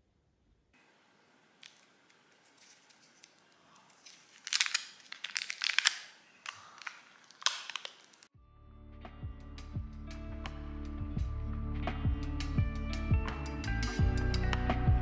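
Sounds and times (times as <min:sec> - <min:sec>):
foil wrapper crinkling: 0:01.6 - 0:08.3.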